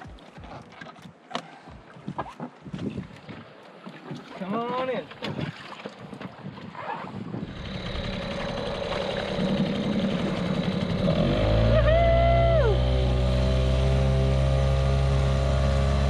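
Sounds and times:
outboard motor running: 0:05.2 - 0:16.0.

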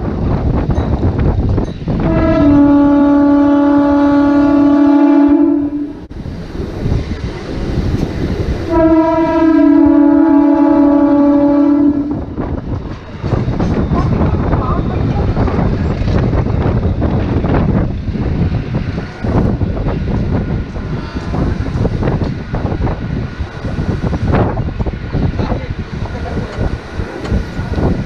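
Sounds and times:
moving train rumble and wind: 0:00.0 - 0:28.0
train horn blasts: 0:02.0 - 0:06.1, 0:08.7 - 0:12.3.

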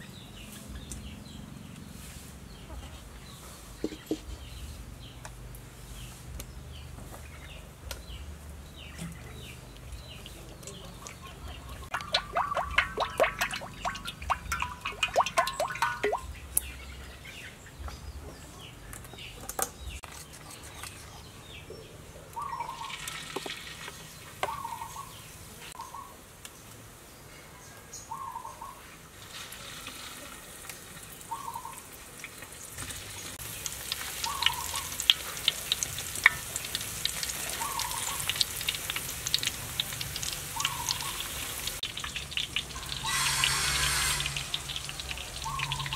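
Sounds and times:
deep-frying crackling sizzle: 0:00.0 - 0:16.9, 0:22.5 - 0:25.8, 0:29.0 - 0:45.9
oil glugging from plastic bottle: 0:11.9 - 0:16.3
bird calling: 0:22.4 - 0:23.1, 0:24.4 - 0:25.2, 0:34.2 - 0:35.0, 0:37.5 - 0:38.4, 0:40.5 - 0:41.5, 0:42.8 - 0:45.9.

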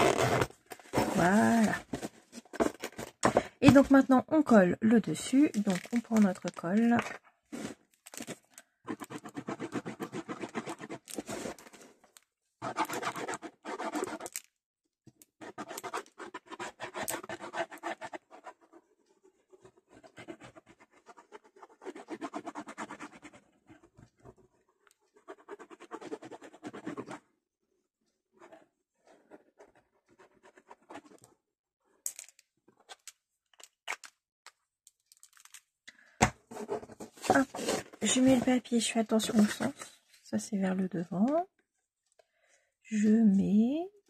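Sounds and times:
glue spreading scratching strokes: 0:19.5 - 0:23.5.

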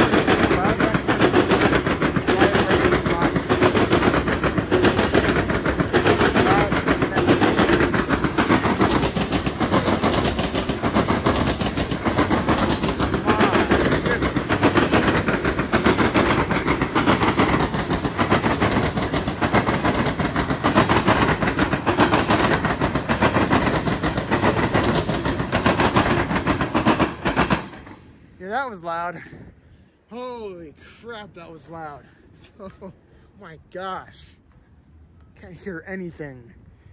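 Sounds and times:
train wheels clattering over crossing: 0:00.0 - 0:28.3.

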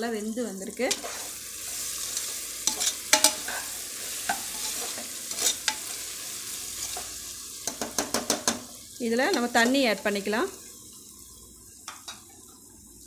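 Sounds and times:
vegetables sizzling in oil: 0:00.0 - 0:13.0
metal spoon clinking on pot: 0:02.2 - 0:03.6.

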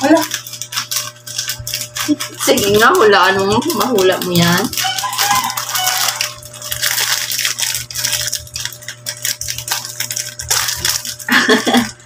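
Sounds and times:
plastic wrapper crinkling: 0:00.0 - 0:12.0.

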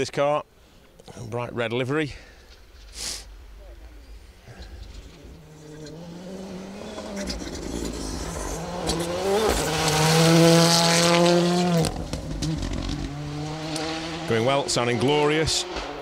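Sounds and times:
rally car engine passing: 0:03.8 - 0:16.0.

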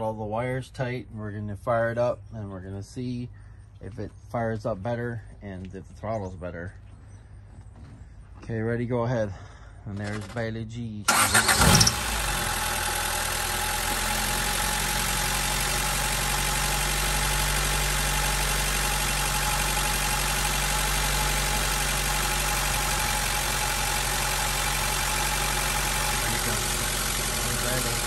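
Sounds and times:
car engine starting and idling: 0:10.0 - 0:10.4, 0:11.0 - 0:28.0.

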